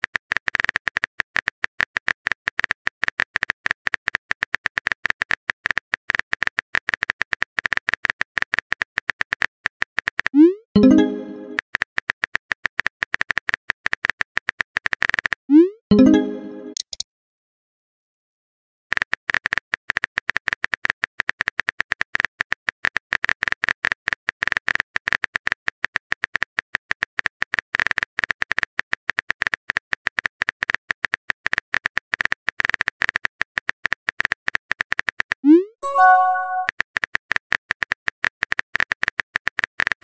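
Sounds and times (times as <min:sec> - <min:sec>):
keyboard typing clicks: 0:15.9 - 0:17.0, 0:35.8 - 0:36.7
short chime: 0:35.8 - 0:36.7.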